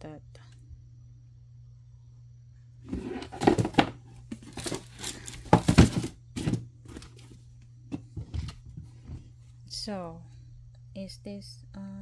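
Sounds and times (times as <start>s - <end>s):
shoes and box rustling on wood floor: 2.9s - 9.4s.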